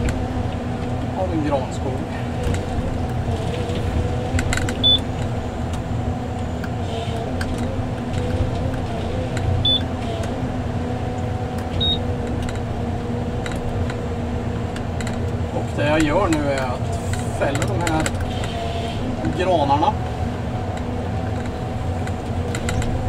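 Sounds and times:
harvester engine humming: 0.0 - 23.0
short high beeps: 9.6 - 9.8, 11.8 - 12.0.

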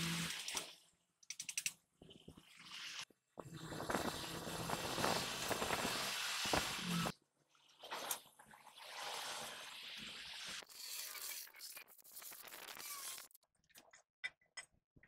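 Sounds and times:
arc welding crackling hiss: 3.8 - 7.1.

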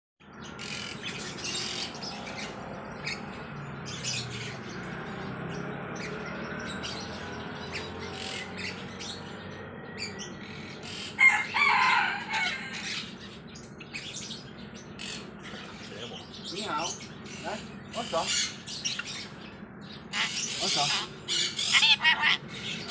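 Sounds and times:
birds chirping and tweeting: 0.2 - 22.9
loud bird call: 10.0 - 14.3, 20.0 - 22.9.

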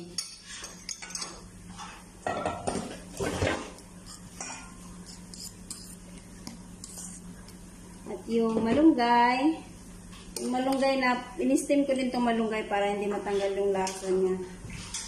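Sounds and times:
metal spoon scraping a bowl: 4.1 - 6.0.

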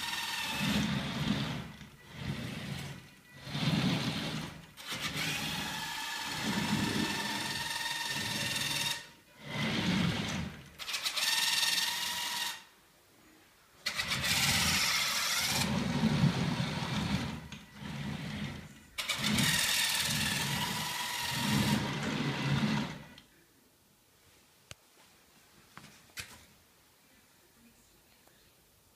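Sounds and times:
robot electric motors whining: 0.0 - 12.7, 13.8 - 23.2.

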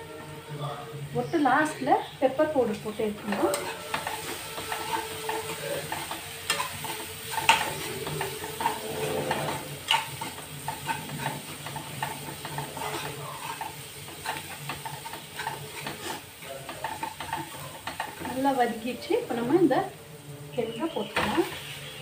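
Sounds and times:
onions sizzling in hot oil: 0.0 - 22.0
metal spoon scraping a pan: 1.6 - 19.9.

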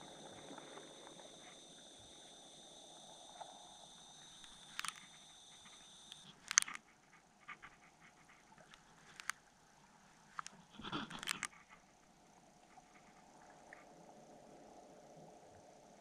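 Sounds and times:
thin high whine: 0.0 - 7.1.

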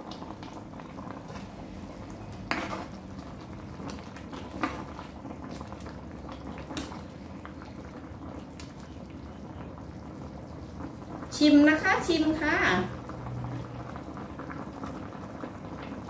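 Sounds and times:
ladle stirring soup: 0.0 - 11.2
soup bubbling in a pan: 0.0 - 16.0.

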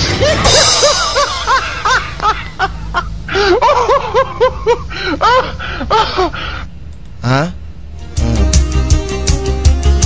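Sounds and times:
rapid high-pitched laughter: 0.0 - 6.6.

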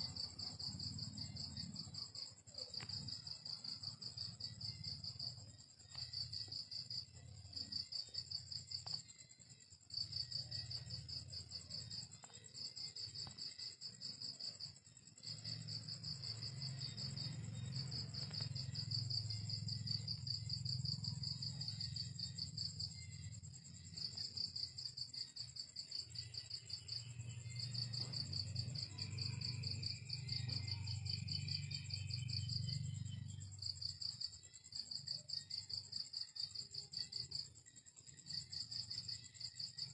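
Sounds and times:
crickets chirping: 0.0 - 39.9.

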